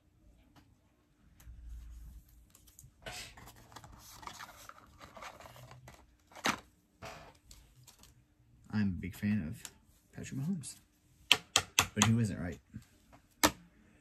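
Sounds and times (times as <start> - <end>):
cards and sleeves rustling: 1.8 - 6.7, 7.4 - 8.2.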